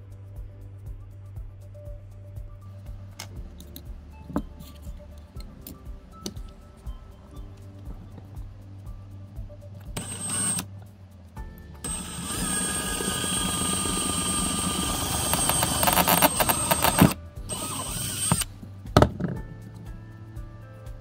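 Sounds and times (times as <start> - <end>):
background music: 0.0 - 21.0
electric drill boring metal: 10.0 - 10.6, 11.8 - 18.5
drill rattling clicks: 11.9 - 18.5.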